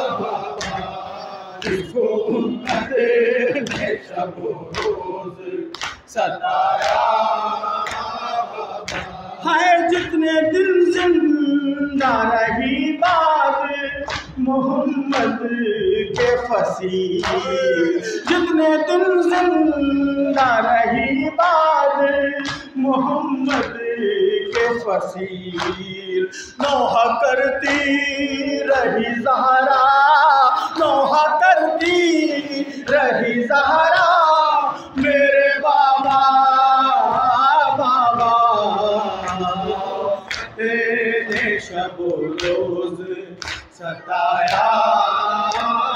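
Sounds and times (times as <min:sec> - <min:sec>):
man singing into a microphone: 0:00.0 - 0:45.9
men chanting: 0:00.0 - 0:45.9
chest-beating slaps: 0:00.5 - 0:01.9, 0:02.6 - 0:04.1, 0:04.7 - 0:05.0, 0:05.7 - 0:06.1, 0:08.8 - 0:09.2.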